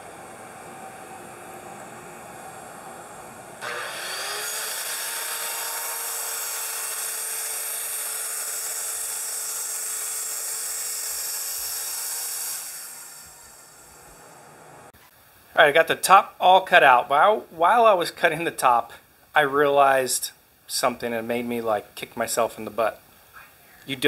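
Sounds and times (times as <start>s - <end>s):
circular saw cutting flooring: 0.0s - 15.0s
steady machine hum: 0.0s - 15.4s.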